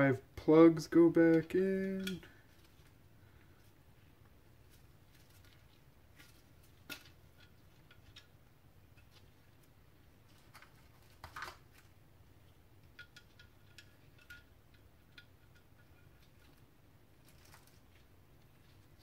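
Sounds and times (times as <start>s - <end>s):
small metal parts clicking: 12.8s - 16.6s.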